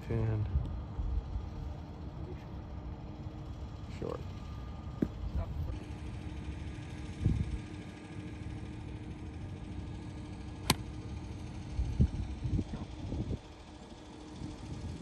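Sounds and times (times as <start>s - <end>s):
golf club striking ball: 10.6s - 11.0s.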